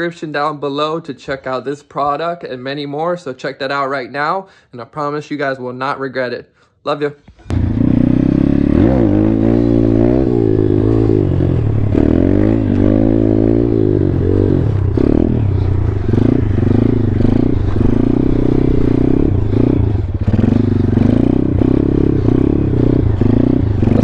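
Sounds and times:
motorbike engine revving: 0:07.5 - 0:24.0.

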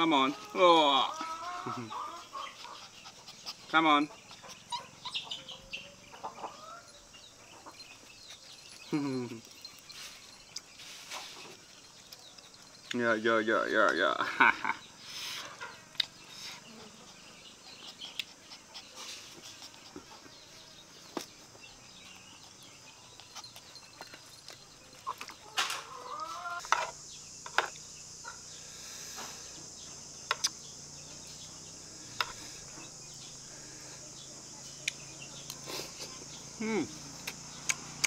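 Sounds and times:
puppies chewing: 0:00.3 - 0:05.8, 0:07.2 - 0:13.4, 0:15.6 - 0:25.6
steady high hiss: 0:26.1 - 0:38.0.

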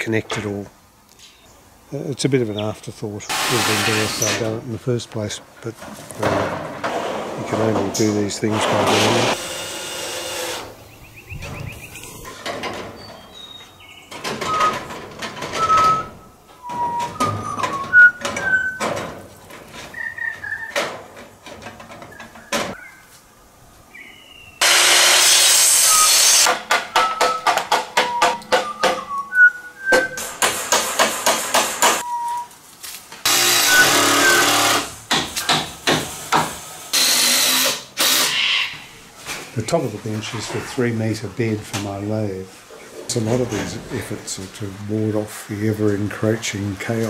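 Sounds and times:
hammer strikes on metal shed: 0:24.6 - 0:29.1, 0:30.0 - 0:32.0, 0:33.3 - 0:37.7.

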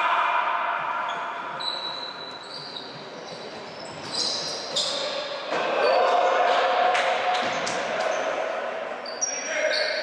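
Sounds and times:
echoing sports hall noise: 0:00.0 - 0:10.0
shoes squeaking on court floor: 0:01.1 - 0:06.1, 0:09.0 - 0:10.0.

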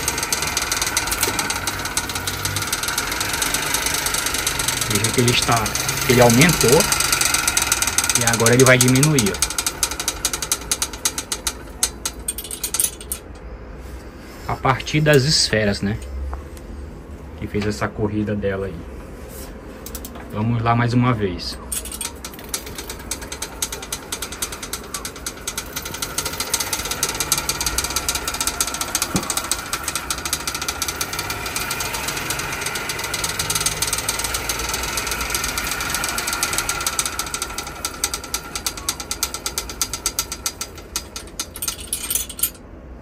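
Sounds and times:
bicycle chain ratcheting clatter: 0:00.0 - 0:13.4, 0:21.7 - 0:42.6.

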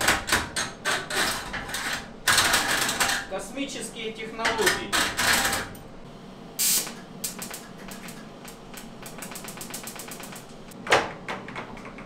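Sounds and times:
welding arc crackling: 0:06.6 - 0:10.8.

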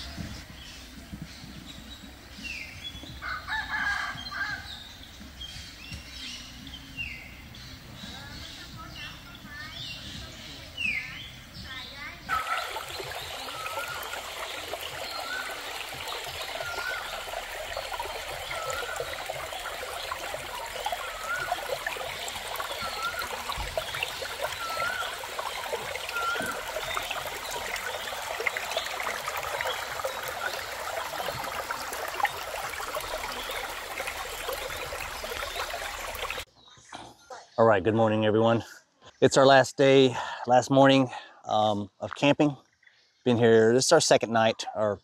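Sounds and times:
stream burbling over stones: 0:12.3 - 0:36.5.

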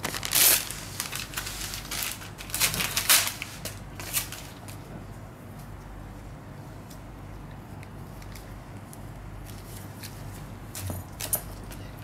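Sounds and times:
gauze wrapper crinkling: 0:00.0 - 0:04.6.

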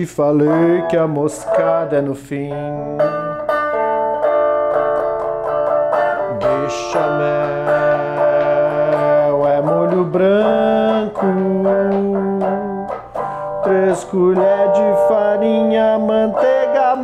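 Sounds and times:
long held melody notes: 0:00.0 - 0:17.0
strummed plucked-string instrument: 0:00.0 - 0:17.0.

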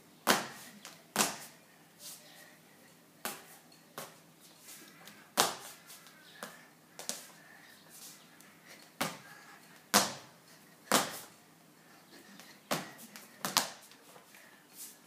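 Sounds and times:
skipping rope slapping tiled floor: 0:09.9 - 0:10.2, 0:10.9 - 0:11.3, 0:12.7 - 0:14.0.

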